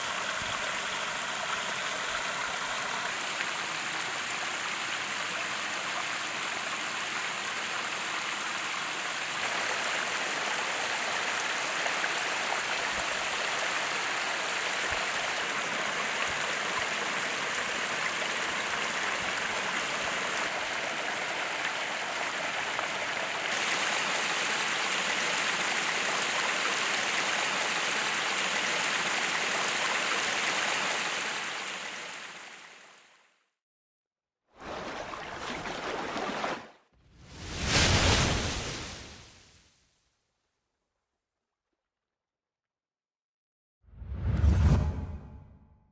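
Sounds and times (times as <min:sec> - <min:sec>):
waterfall splashing into pool: 0:00.0 - 0:32.7, 0:37.4 - 0:39.2.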